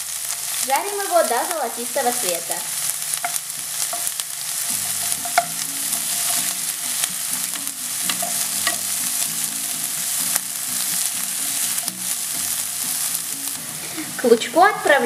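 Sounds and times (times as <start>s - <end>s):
onion sizzling in a frying pan: 0.0s - 15.0s.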